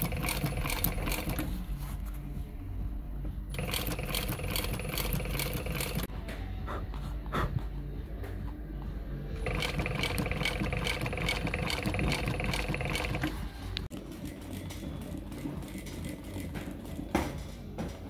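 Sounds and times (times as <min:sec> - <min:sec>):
sewing machine running: 0:00.0 - 0:01.6, 0:03.5 - 0:06.1, 0:09.4 - 0:17.0.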